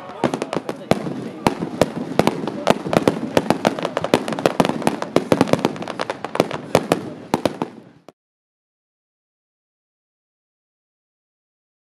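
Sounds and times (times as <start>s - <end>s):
fireworks bangs: 0.0s - 8.2s
fireworks rumble: 0.0s - 8.2s.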